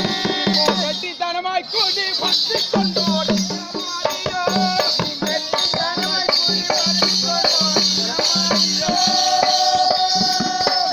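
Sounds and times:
hand drum beating: 0.0 - 1.0, 2.7 - 10.9
jingling bells: 0.0 - 10.9
person singing: 2.6 - 10.9.

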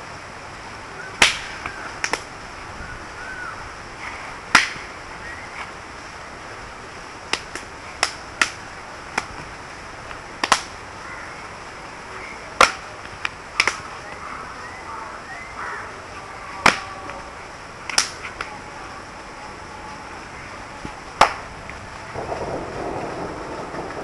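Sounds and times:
hand and clothing slaps: 13.6 - 13.8, 21.2 - 21.4.

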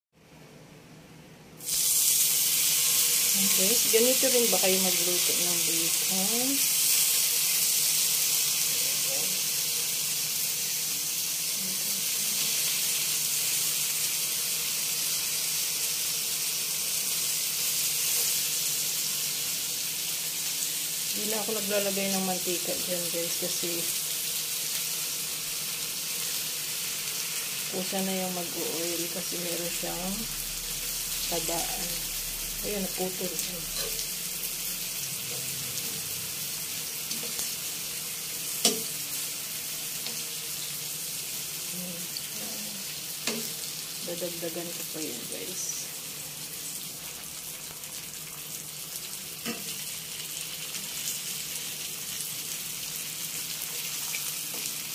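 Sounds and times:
bacon sizzling in a frying pan: 1.6 - 54.9
metal tongs clicking on pan: 38.6 - 39.0, 43.2 - 43.5.

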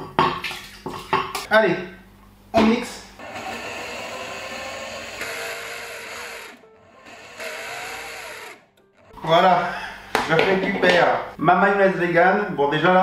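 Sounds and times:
blender running: 3.2 - 9.2.

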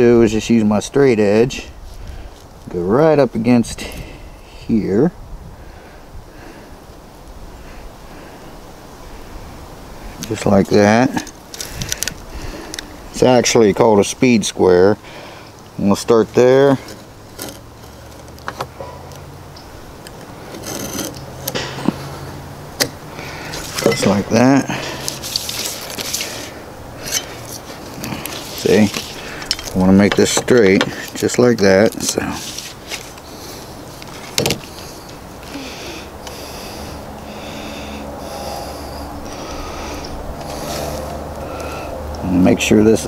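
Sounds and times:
steady low hum: 0.0 - 42.4
knife scraping: 20.4 - 22.1, 25.0 - 29.8
soft handling and sliding: 23.2 - 35.2.

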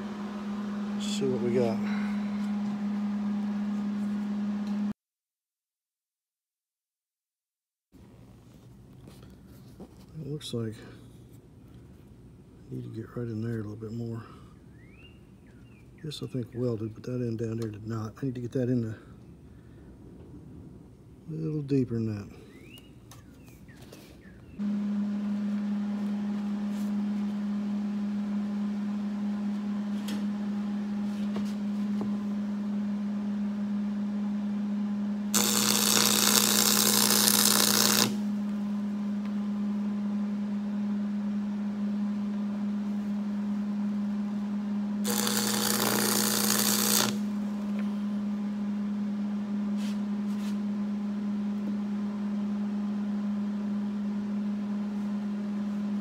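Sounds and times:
steady hum: 0.0 - 4.9, 24.3 - 56.0
welding arc sizzling: 35.3 - 38.4, 45.0 - 47.6.

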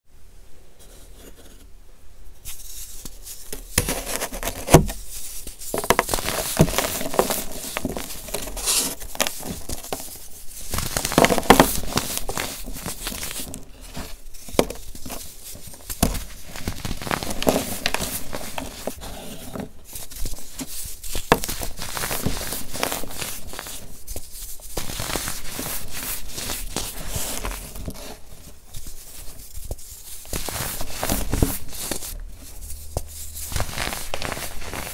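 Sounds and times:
dry blocks crunching and cracking: 5.7 - 23.9.

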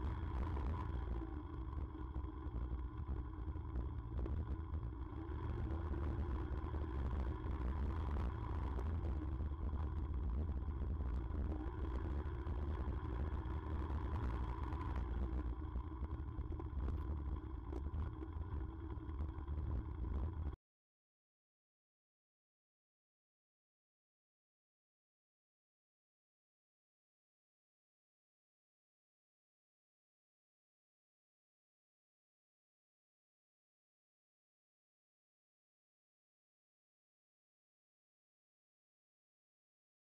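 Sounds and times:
motorcycle engine running: 0.0 - 20.6.

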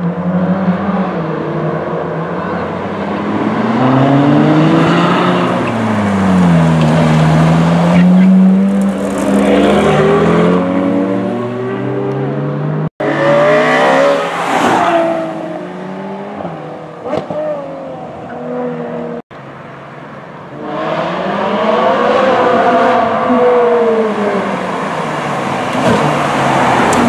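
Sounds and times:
car engines accelerating past: 0.0 - 17.7.

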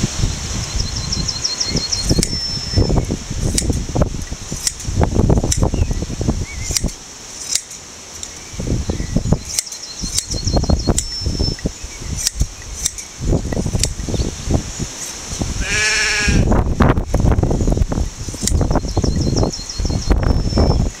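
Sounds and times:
wind rumbling on microphone: 0.0 - 7.4, 8.2 - 21.0
shears snipping fleece: 1.9 - 2.4, 3.4 - 5.7, 6.6 - 8.4, 9.4 - 11.2, 12.1 - 14.0, 14.9 - 15.5, 18.2 - 18.7.

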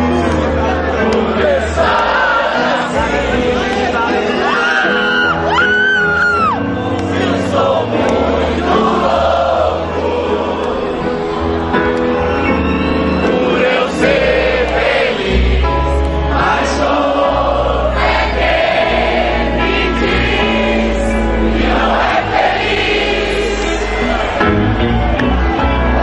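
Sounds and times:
live rock band playing: 0.0 - 2.0, 9.8 - 26.0
crowd singing along: 0.0 - 26.0.

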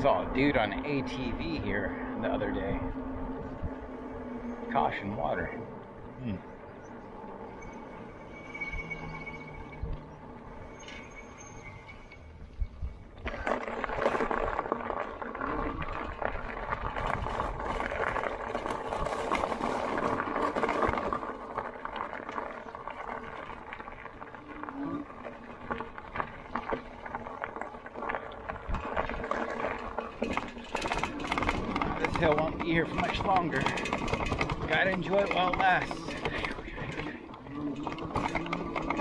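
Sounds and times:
bike tyres rolling over dirt: 0.0 - 39.0
small clicks and rattles: 13.2 - 39.0.

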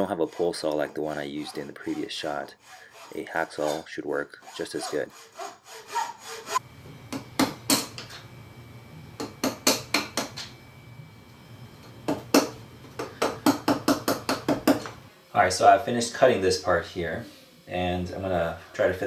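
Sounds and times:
wood chisel cutting strokes: 0.0 - 6.6.

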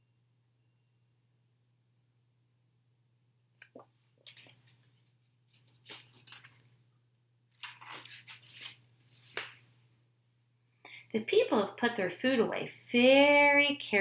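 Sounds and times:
book pages turning: 3.7 - 6.8, 7.5 - 9.7.

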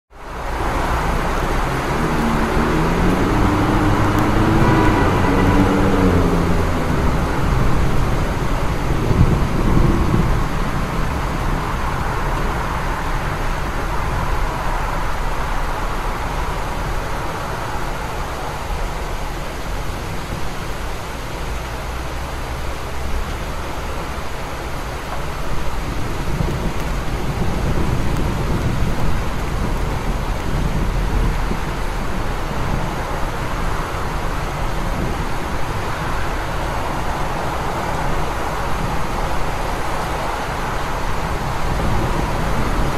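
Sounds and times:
heavy rain on a street: 0.1 - 42.9
road traffic: 0.1 - 42.9
vehicle engine passing: 0.3 - 10.3.

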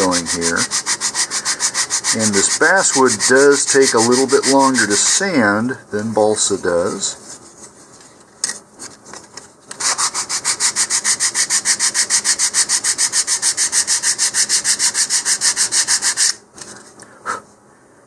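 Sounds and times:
sandpaper rubbing on wood: 0.0 - 5.1, 9.8 - 16.4.

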